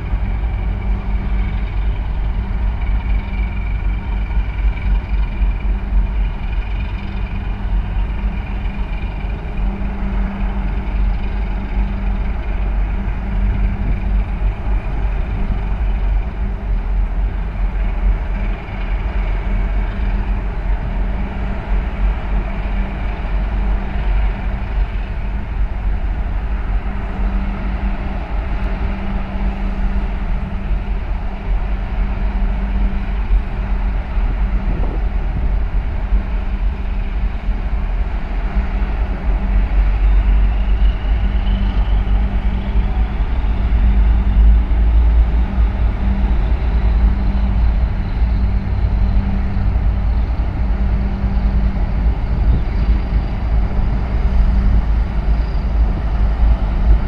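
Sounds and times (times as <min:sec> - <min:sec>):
ship diesel engines droning: 0:00.0 - 0:57.0.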